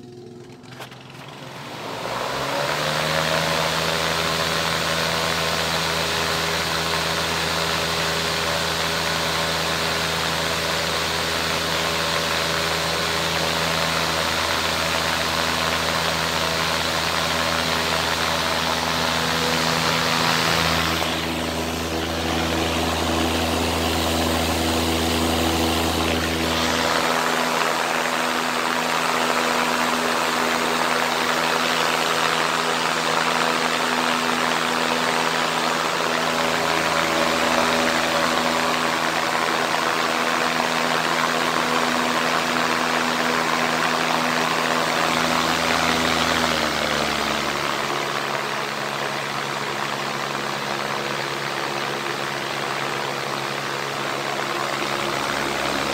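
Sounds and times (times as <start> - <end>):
exhaust fan motor hum: 0.0 - 55.9
rushing air: 16.2 - 32.7.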